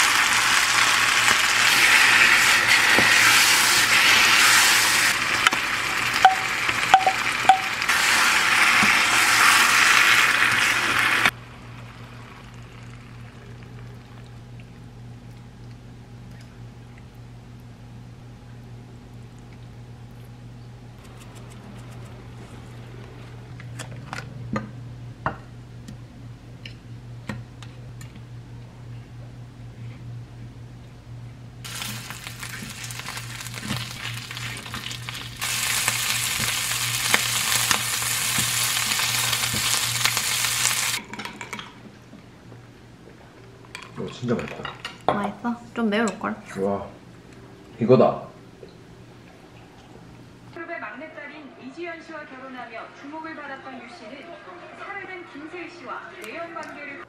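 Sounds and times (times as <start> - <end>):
food sizzling in a frying pan: 0.0 - 13.6, 31.6 - 41.0
steady low hum: 11.3 - 41.0.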